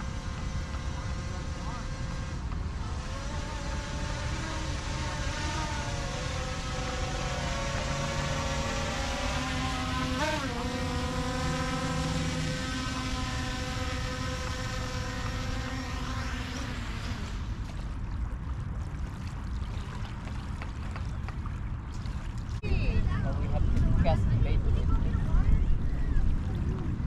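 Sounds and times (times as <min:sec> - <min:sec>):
drone propellers whining: 0:00.0 - 0:17.6.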